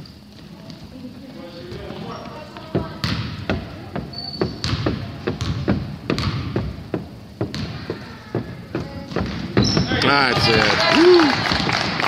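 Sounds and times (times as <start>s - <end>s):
gym hum: 0.0s - 12.0s
basketball bouncing on hardwood: 2.6s - 10.5s
shoe squeak: 3.6s - 6.4s, 7.7s - 10.3s.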